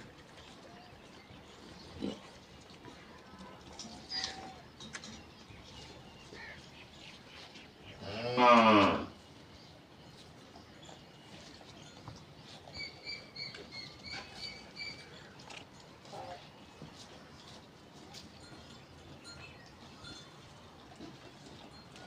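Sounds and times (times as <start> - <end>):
cow mooing: 8.0 - 9.1.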